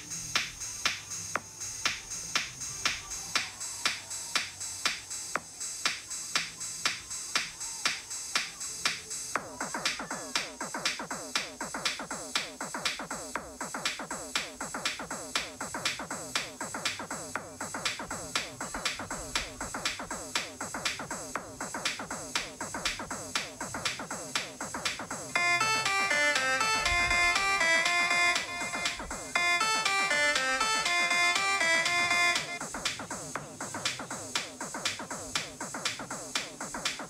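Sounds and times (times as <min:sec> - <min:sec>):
drum machine beat: 0:00.0 - 0:37.0
synth electronic music: 0:00.0 - 0:37.0
bright synth melody: 0:25.3 - 0:32.6.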